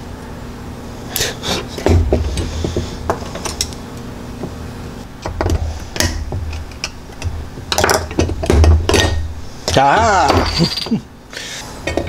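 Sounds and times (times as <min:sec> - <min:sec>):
metal parts clicking and knocking: 0:05.2 - 0:10.7.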